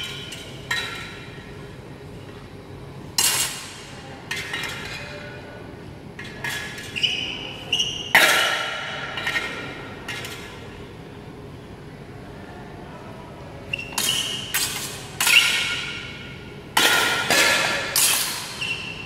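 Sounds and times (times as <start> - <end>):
metal swords clashing: 16.8 - 18.6.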